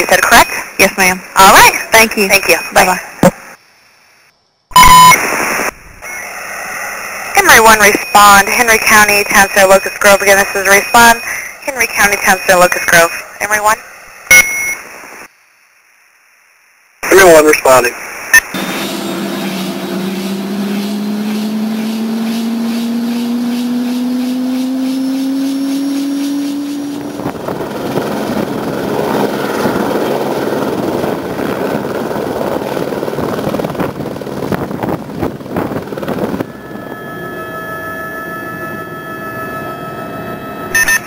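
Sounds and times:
helicopter turbine whine: 6.0s - 14.3s, 18.4s - 40.8s
cockpit drone: 18.4s - 41.0s
helicopter rotors and engine rush: 18.5s - 40.8s.

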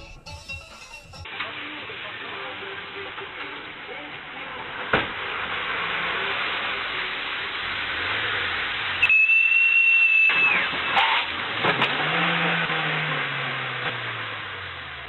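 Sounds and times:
high whistle-like tone: 9.0s - 10.7s.

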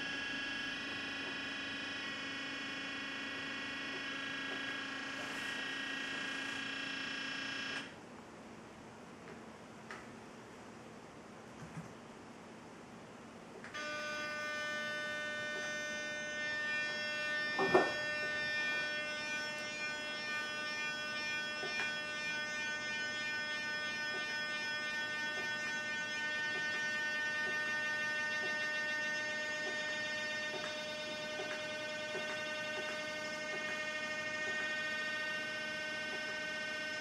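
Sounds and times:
buzzing chord: 13.8s - 37.0s.

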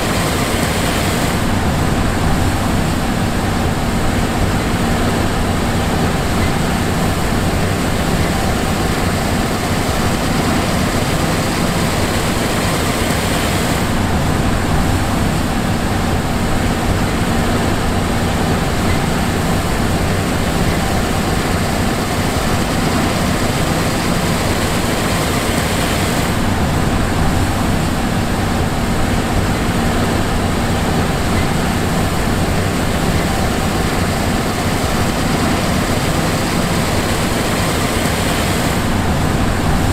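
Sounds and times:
combine harvester running: 0.0s - 39.9s.

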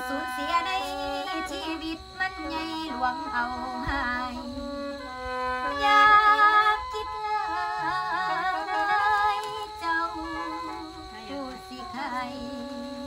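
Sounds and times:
mouth organ drone chords: 0.0s - 13.0s
woman singing wavering phrase: 5.8s - 13.0s.

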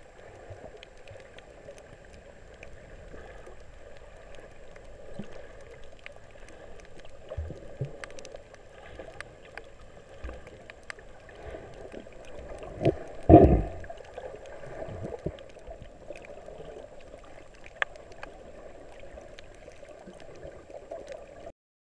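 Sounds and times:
rush of water noise: 0.0s - 21.5s
faint clicks: 0.1s - 21.4s.

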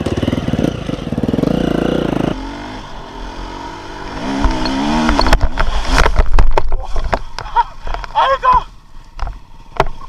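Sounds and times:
motorcycle engine revving: 0.0s - 6.7s.

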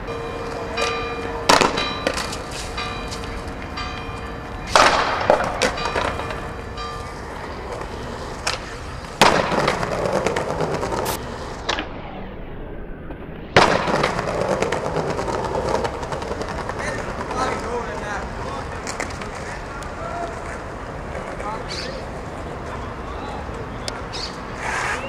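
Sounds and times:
skateboard wheels rolling on stone: 0.4s - 11.8s, 13.6s - 25.0s
skateboard clacks: 0.5s - 3.3s, 4.7s - 6.4s, 7.0s - 11.1s, 13.6s - 22.8s.

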